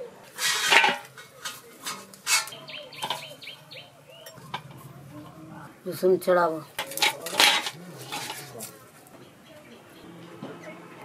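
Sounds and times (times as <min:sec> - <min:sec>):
small bird chirping: 0:02.5 - 0:04.5.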